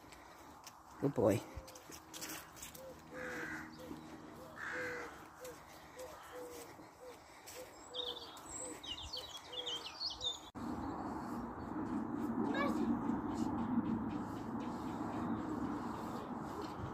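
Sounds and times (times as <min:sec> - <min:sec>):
small birds chirping: 0:00.2 - 0:16.9
crows cawing: 0:01.6 - 0:10.0.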